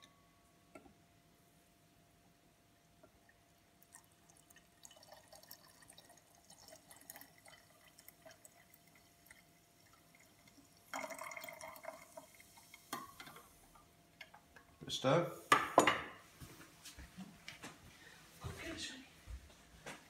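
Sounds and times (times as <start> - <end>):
liquid pouring into glass: 3.1 - 13.5.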